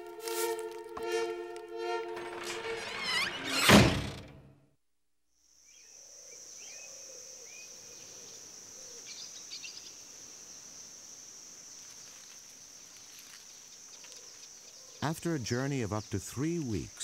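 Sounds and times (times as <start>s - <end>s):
high-pitched insect chorus: 5.5s - 17.0s.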